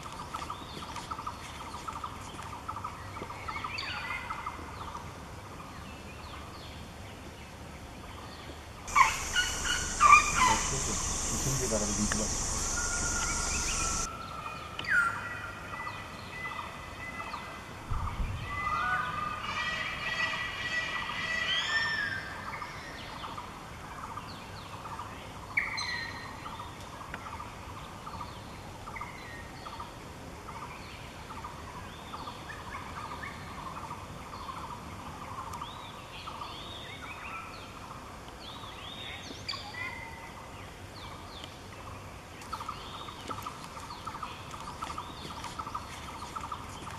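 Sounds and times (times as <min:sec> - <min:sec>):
birds whistling and chirping: 0:08.9 - 0:14.1.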